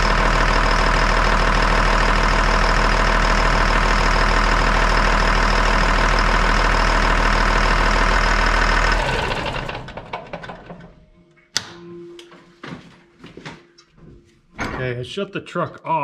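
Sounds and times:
diesel truck engine idling: 0:00.0 - 0:10.7
engine ticking: 0:00.0 - 0:11.0.

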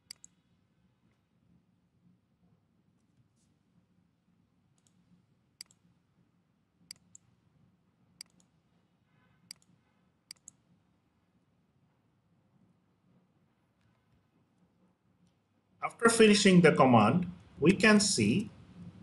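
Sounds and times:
computer mouse clicking: 0:00.0 - 0:00.4, 0:04.8 - 0:05.0, 0:05.6 - 0:05.8, 0:06.9 - 0:07.3, 0:08.2 - 0:08.6, 0:09.5 - 0:10.6.

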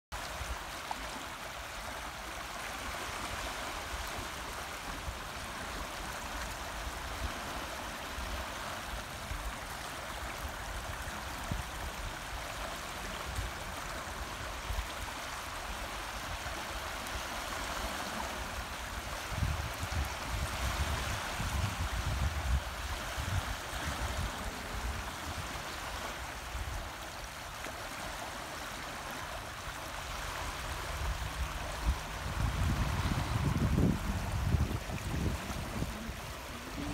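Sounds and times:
water rippling over shingle: 0:00.2 - 0:36.9.

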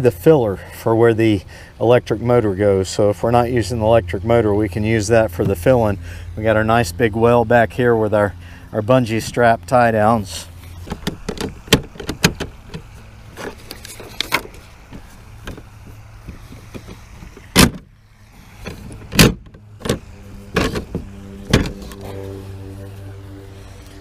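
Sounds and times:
steady low hum: 0:00.0 - 0:24.0
kayak seat frame clacking on hull: 0:10.8 - 0:17.9, 0:18.6 - 0:22.2.

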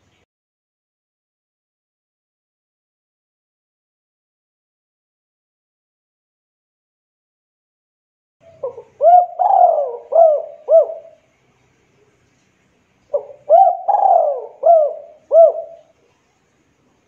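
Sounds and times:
dove cooing: 0:08.5 - 0:11.2, 0:13.1 - 0:16.0.

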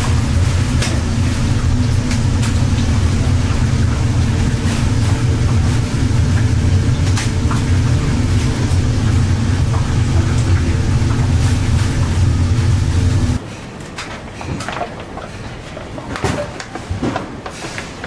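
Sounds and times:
low machine hum: 0:00.0 - 0:13.5.

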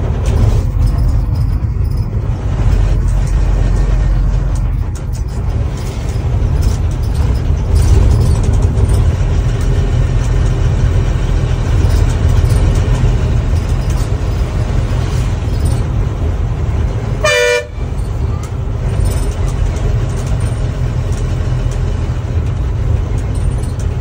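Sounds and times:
vehicle engine and road rumble: 0:00.0 - 0:24.0
vehicle horn blast: 0:17.2 - 0:17.9.

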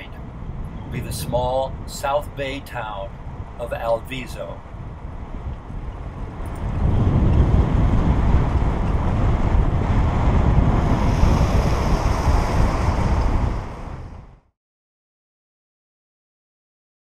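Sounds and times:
wind buffeting microphone: 0:00.0 - 0:14.5.

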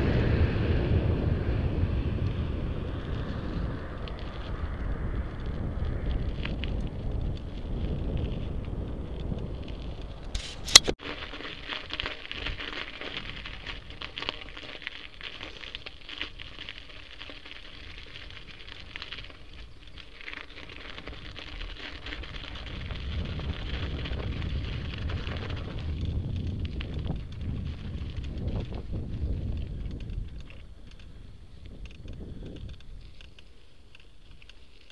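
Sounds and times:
bicycle tyres crunching over gravel: 0:00.0 - 0:34.9
wind rumbling on microphone: 0:00.0 - 0:34.9.

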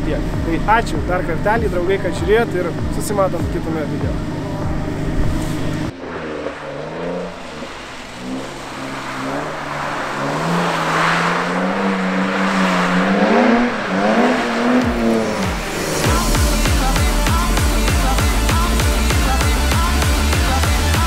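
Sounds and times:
electronic music with heavy beat: 0:00.0 - 0:06.0, 0:13.4 - 0:21.0
car engine revving: 0:00.0 - 0:21.0.

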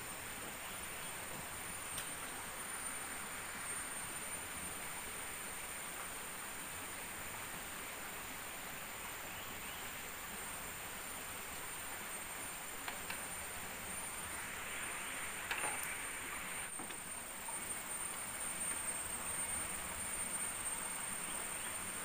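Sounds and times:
forest ambience hiss: 0:00.0 - 0:22.0
insects droning: 0:00.0 - 0:22.0
faint clicks: 0:01.9 - 0:02.2, 0:12.8 - 0:13.3.

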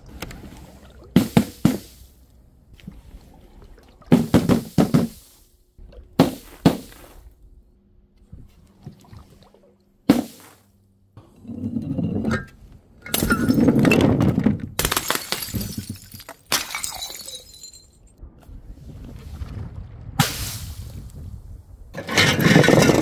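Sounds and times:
glass breaking and shattering: 0:13.0 - 0:14.2, 0:14.8 - 0:18.1.

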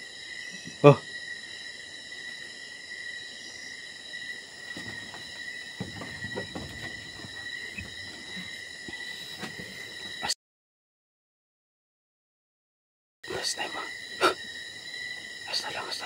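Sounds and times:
insects chirring: 0:00.0 - 0:10.4, 0:13.2 - 0:16.0
soft knocks: 0:04.7 - 0:08.6.

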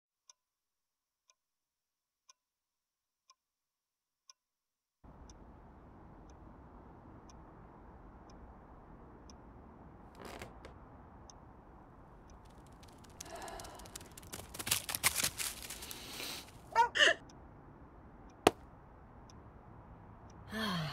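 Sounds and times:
rustle: 0:13.2 - 0:16.6.

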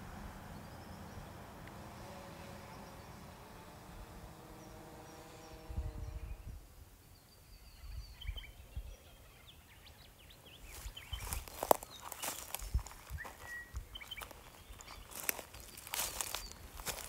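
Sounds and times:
faint steady hum: 0:00.0 - 0:17.0
bird chirps: 0:04.4 - 0:17.0.

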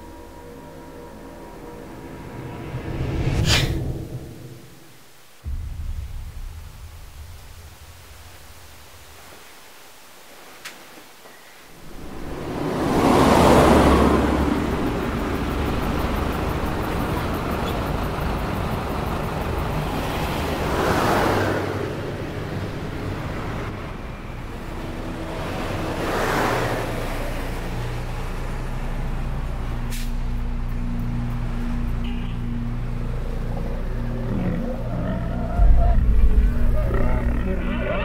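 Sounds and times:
cars passing: 0:00.0 - 0:05.6, 0:11.8 - 0:38.0
steady low hum: 0:00.0 - 0:10.1, 0:32.6 - 0:38.0.

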